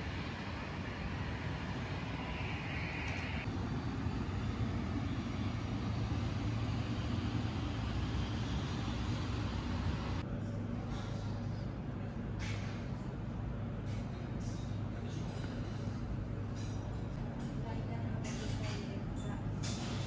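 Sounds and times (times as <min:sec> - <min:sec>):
jet aircraft rumble: 0:00.0 - 0:10.2.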